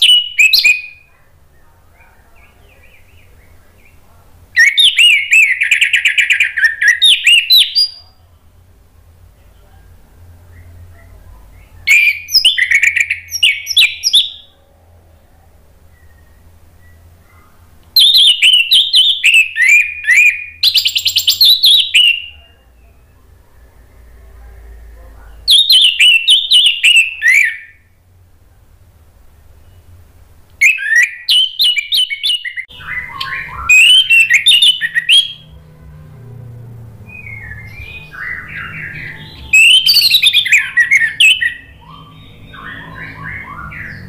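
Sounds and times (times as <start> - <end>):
thrush singing: 32.6 - 44.0.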